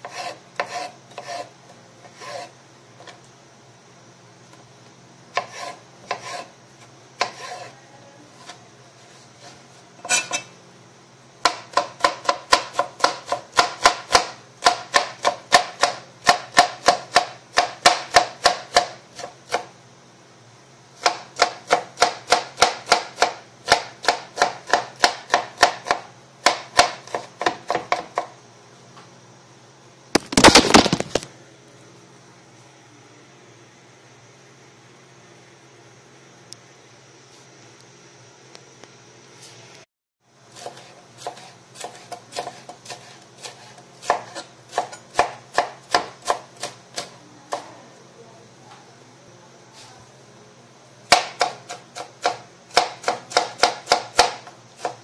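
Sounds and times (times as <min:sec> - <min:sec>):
knife chopping on plastic board: 0:00.0 - 0:03.2, 0:05.4 - 0:06.5, 0:07.2 - 0:07.7, 0:11.4 - 0:19.7, 0:21.0 - 0:28.3, 0:40.6 - 0:47.7, 0:51.1 - 0:55.0.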